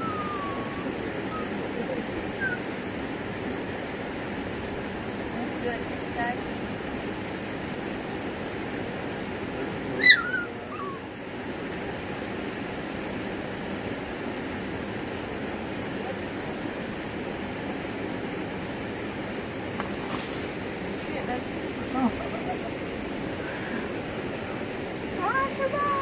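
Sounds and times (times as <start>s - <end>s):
short high falling call: 0.0s - 2.7s, 10.0s - 11.1s.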